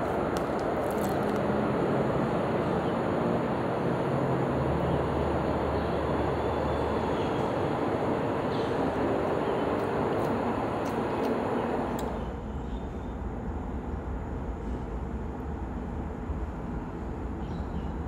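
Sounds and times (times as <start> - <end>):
passing vehicle rumble: 0.0 - 12.5.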